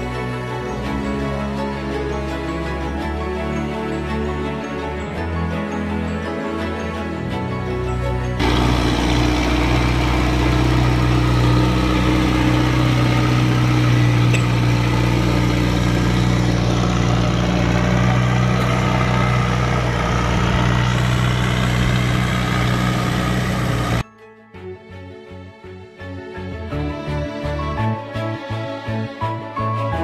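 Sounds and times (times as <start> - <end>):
forklift engine running: 7.9 - 24.0.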